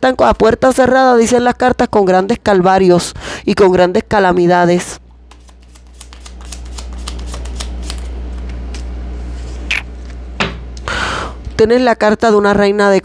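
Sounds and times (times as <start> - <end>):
cards shuffled by hand: 5.3 - 9.8.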